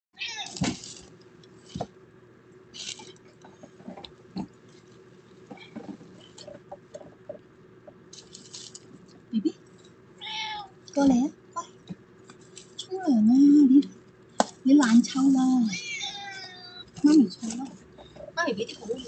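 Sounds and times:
bedding rustling: 0:00.4 - 0:02.0.

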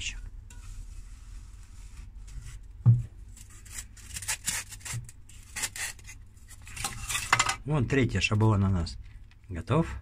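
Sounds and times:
dull thump: 0:02.8 - 0:03.2.

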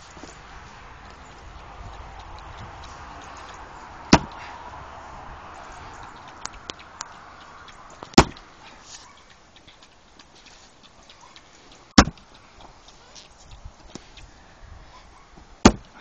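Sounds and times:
axe chopping into log: 0:04.1 - 0:04.4, 0:08.2 - 0:08.4, 0:12.0 - 0:12.2, 0:15.6 - 0:16.0.

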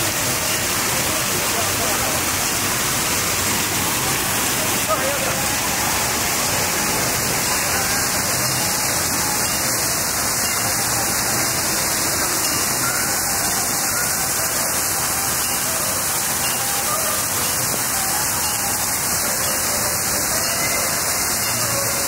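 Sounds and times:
fountain water splashing: 0:00.0 - 0:22.0
faint voices: 0:00.2 - 0:14.7.

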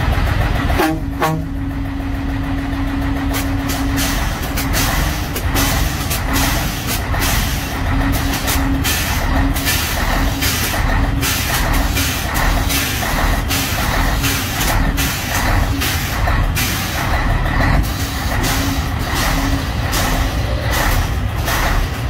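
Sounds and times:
diesel engine idling: 0:00.0 - 0:22.0
air suspension hissing: 0:03.3 - 0:17.2.

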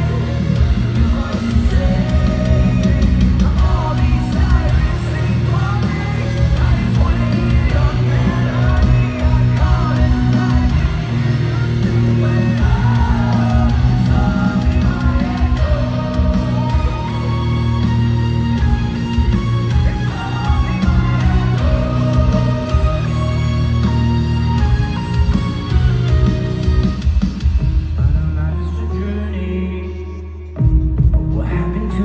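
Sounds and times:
live rock band playing: 0:00.0 - 0:32.0
person singing lead vocals: 0:00.0 - 0:32.0.

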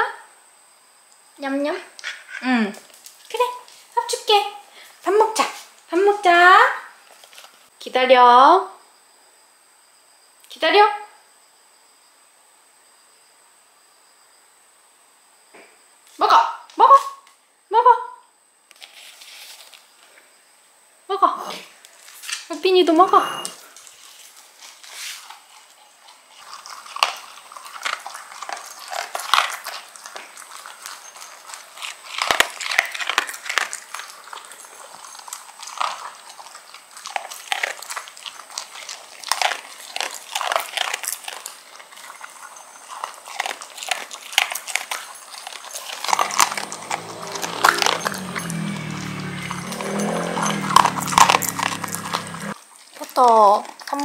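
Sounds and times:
dog crunching kibble: 0:07.1 - 0:07.6, 0:23.6 - 0:54.0.

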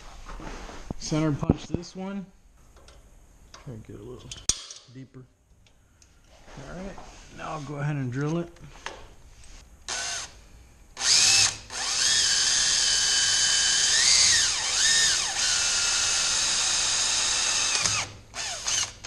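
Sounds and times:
power drill boring into metal: 0:11.0 - 0:19.0.

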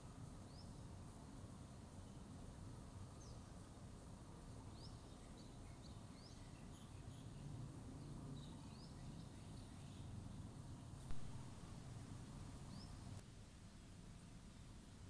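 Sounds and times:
small birds chirping: 0:04.7 - 0:13.2
low steady rumble: 0:11.0 - 0:15.0.

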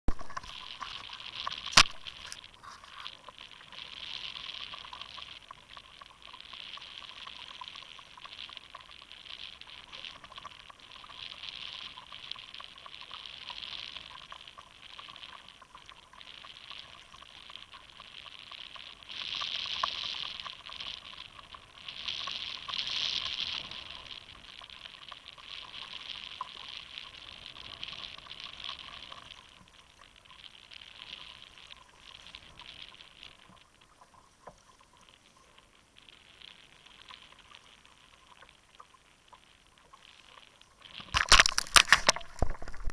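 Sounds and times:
water splashing against kayak hull: 0:41.0 - 0:42.9.

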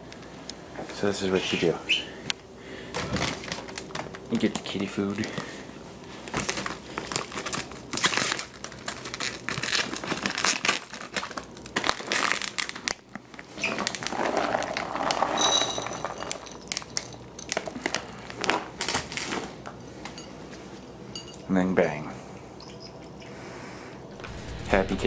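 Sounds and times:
plastic bag crinkling: 0:06.2 - 0:19.6
kibble pouring into a dish: 0:14.1 - 0:16.5.

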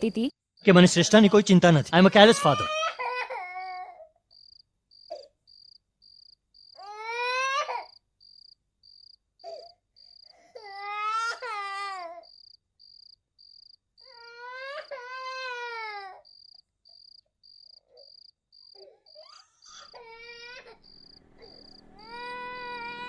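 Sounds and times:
long wailing cries: 0:02.0 - 0:04.2, 0:06.8 - 0:08.0, 0:10.4 - 0:12.4, 0:14.0 - 0:16.3, 0:18.8 - 0:23.0
crickets chirping: 0:04.3 - 0:06.8, 0:07.8 - 0:10.4, 0:12.2 - 0:14.3, 0:16.2 - 0:23.0.

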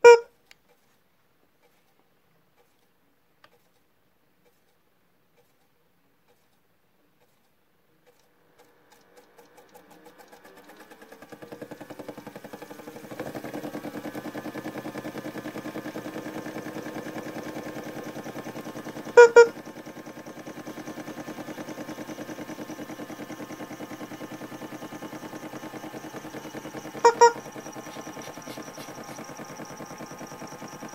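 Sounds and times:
short loud beeps: 0:00.0 - 0:00.3, 0:19.2 - 0:19.6, 0:26.2 - 0:29.2
toy washing machine motor whirring: 0:08.0 - 0:30.9.

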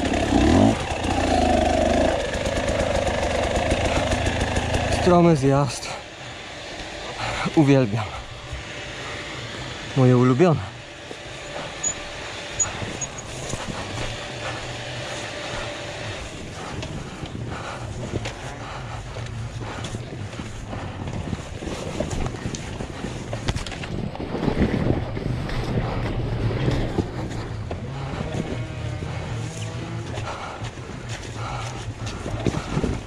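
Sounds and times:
bike knocking and rattling: 0:00.0 - 0:06.0, 0:11.0 - 0:33.0
motorcycle engine running: 0:00.0 - 0:33.0
wind buffeting microphone: 0:15.6 - 0:33.0.

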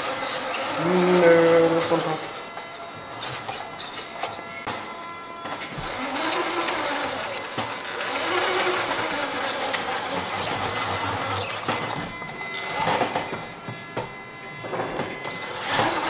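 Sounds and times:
toy truck motor whirring: 0:00.0 - 0:16.0
faint wavering whine: 0:09.2 - 0:16.0.

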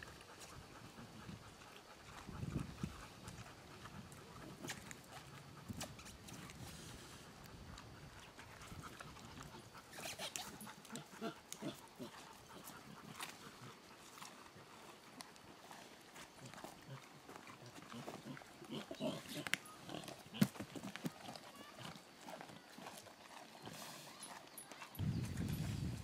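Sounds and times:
pig crunching pumpkin: 0:01.4 - 0:25.9.

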